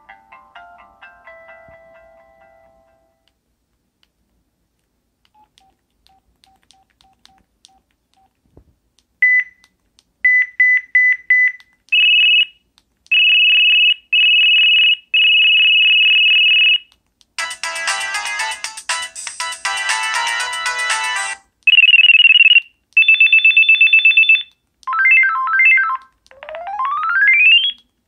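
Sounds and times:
melodic ringtone: 0:00.0 - 0:03.2, 0:17.4 - 0:27.8
phone ringtone beeps: 0:21.7 - 0:27.8.

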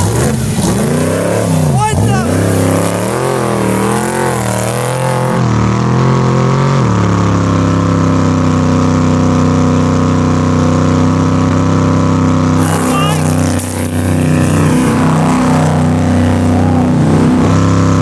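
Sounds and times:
race vehicle engine revving: 0:00.0 - 0:18.0.

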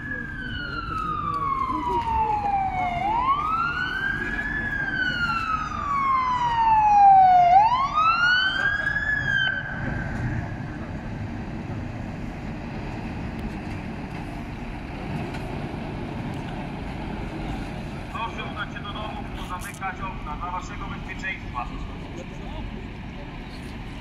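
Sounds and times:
fire truck siren wailing: 0:00.0 - 0:11.2
diesel engine running: 0:08.4 - 0:24.0.

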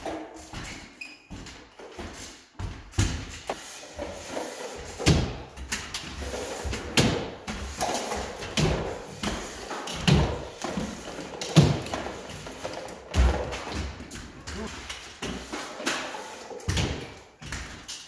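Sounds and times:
stilts knocking on floor: 0:06.6 - 0:15.6.

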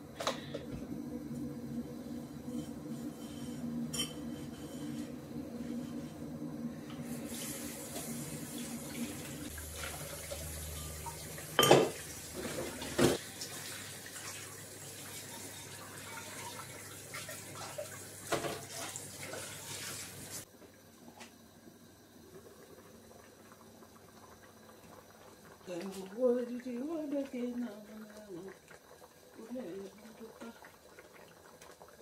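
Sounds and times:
tap running into a sink: 0:09.7 - 0:13.7, 0:17.6 - 0:20.0.

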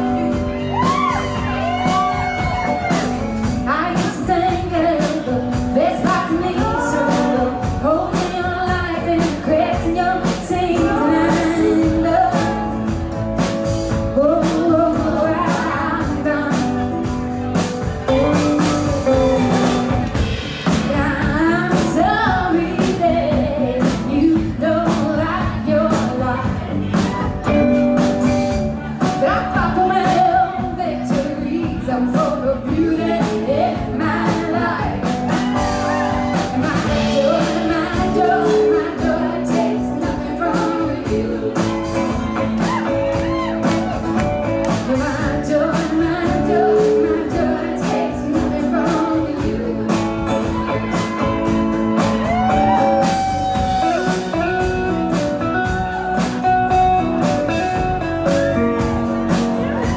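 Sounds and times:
woman singing: 0:00.0 - 0:13.1, 0:13.9 - 0:17.2, 0:20.8 - 0:27.6, 0:29.0 - 0:54.6
live band playing: 0:00.0 - 0:59.9.

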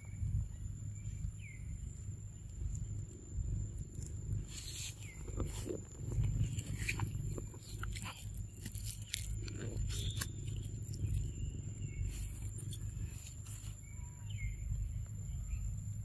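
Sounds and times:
steady low rumble: 0:00.0 - 0:16.0
paper carton crinkling: 0:04.0 - 0:11.4.

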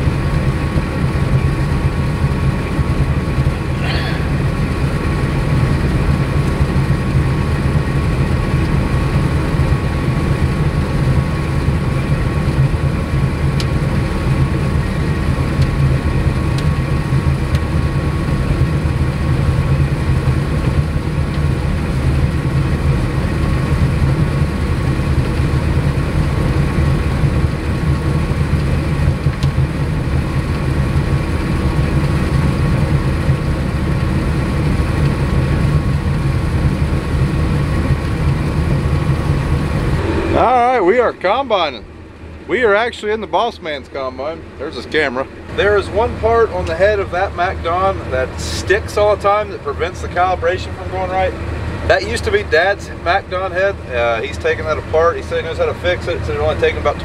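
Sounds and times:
combine harvester engine drone: 0:00.0 - 0:57.0
high whine: 0:03.4 - 0:06.5, 0:37.2 - 0:54.1.

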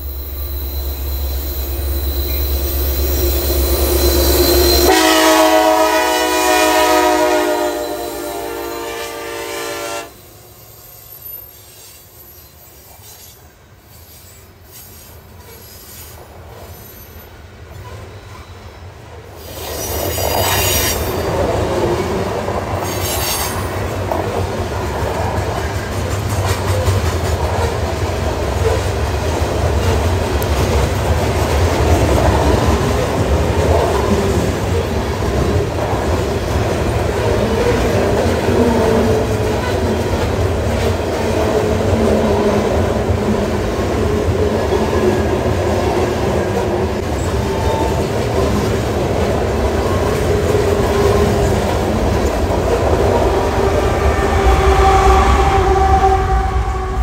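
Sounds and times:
high-pitched wheel screeches: 0:00.0 - 0:05.4
freight train rolling past: 0:00.0 - 0:57.0.

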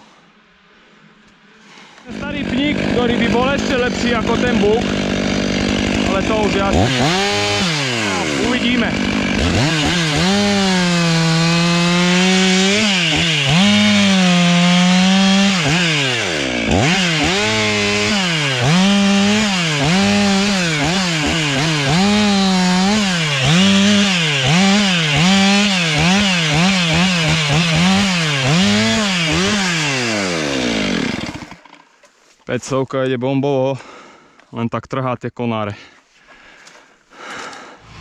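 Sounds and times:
chainsaw cutting branches: 0:02.0 - 0:32.0.

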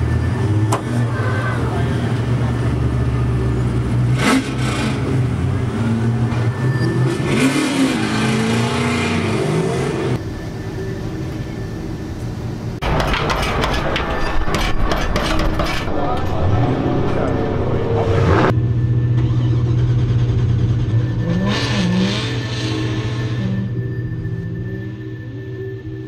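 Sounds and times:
sharp clicks and metallic clatter: 0:12.8 - 0:16.6
vehicle engine running inside cabin: 0:15.9 - 0:26.0.

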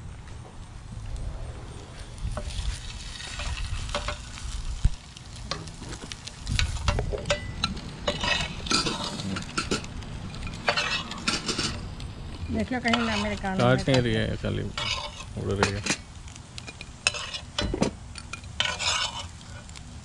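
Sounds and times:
food sizzling in skillet: 0:01.3 - 0:20.0
metal utensil scraping pan: 0:06.6 - 0:11.9, 0:12.5 - 0:16.1, 0:16.7 - 0:19.7.

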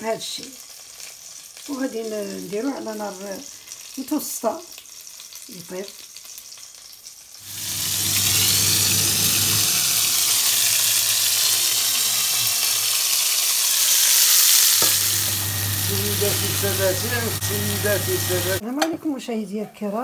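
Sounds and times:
fish sizzling in pot: 0:00.0 - 0:18.6
low hum: 0:14.9 - 0:18.6.

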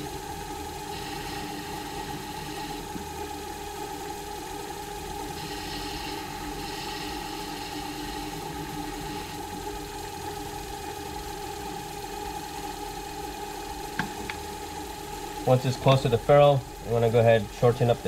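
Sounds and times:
turning tool cutting hiss: 0:00.0 - 0:13.2
lathe motor hum: 0:00.0 - 0:18.0.

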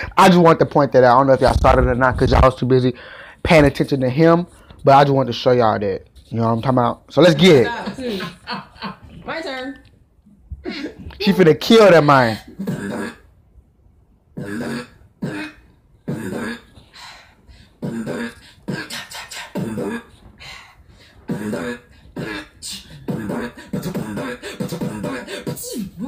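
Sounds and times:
woman beatboxing: 0:12.5 - 0:13.2, 0:14.4 - 0:16.8, 0:17.8 - 0:20.2, 0:21.3 - 0:26.0.

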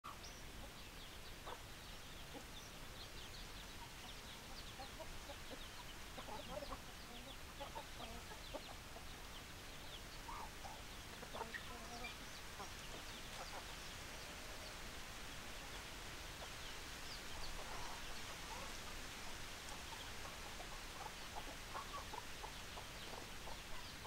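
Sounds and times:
chicks peeping: 0:00.1 - 0:24.0
hens clucking: 0:03.6 - 0:14.7, 0:16.4 - 0:24.0.

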